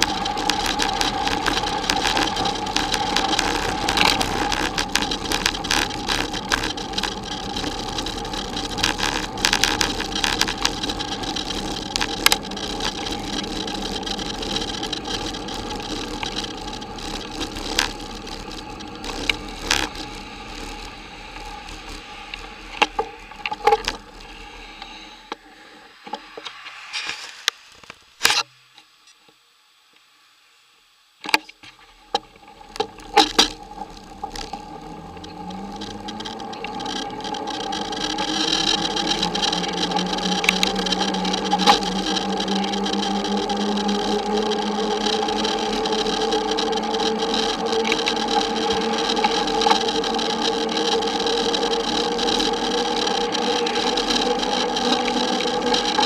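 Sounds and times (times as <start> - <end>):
tyres crunching on gravel: 0.0 - 25.1, 31.8 - 56.0
bike rattling: 0.0 - 25.3, 31.7 - 56.0.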